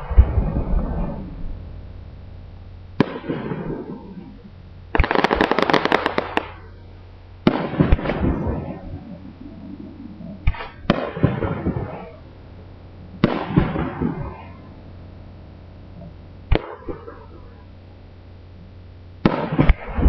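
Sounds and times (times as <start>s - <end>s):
fireworks crackling: 0.0s - 18.0s, 19.1s - 20.0s
fireworks bangs: 2.9s - 6.8s, 7.4s - 9.3s, 10.3s - 12.3s, 13.1s - 14.8s, 16.5s - 17.6s, 19.2s - 20.0s.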